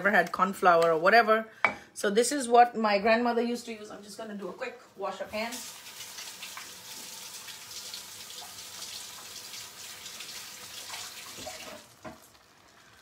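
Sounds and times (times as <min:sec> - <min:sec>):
tap water running: 0:04.9 - 0:13.0.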